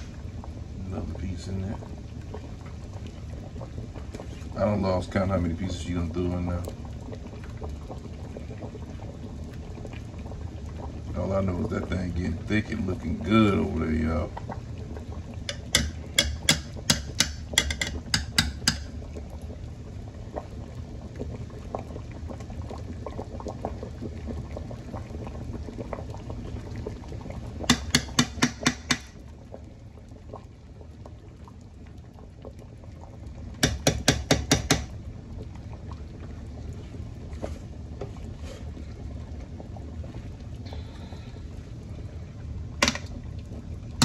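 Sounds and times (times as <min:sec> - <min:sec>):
broth bubbling: 0:00.0 - 0:44.0
spoon tapping pot rim: 0:15.5 - 0:19.0, 0:27.7 - 0:29.1, 0:33.6 - 0:34.9.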